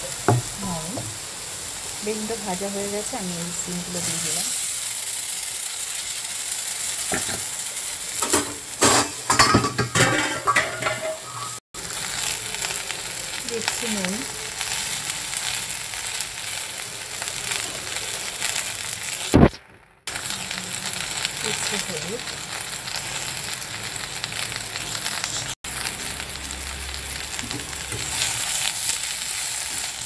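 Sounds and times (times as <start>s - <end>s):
vegetables sizzling in oil: 0.0s - 30.0s
utensil scraping metal pan: 8.2s - 11.6s.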